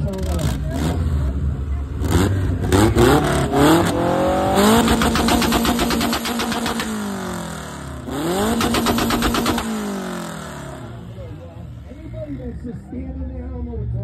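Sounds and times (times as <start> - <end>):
car engine revving on limiter: 0.2 - 11.2
exhaust crackling pops: 4.7 - 7.3, 8.4 - 9.9.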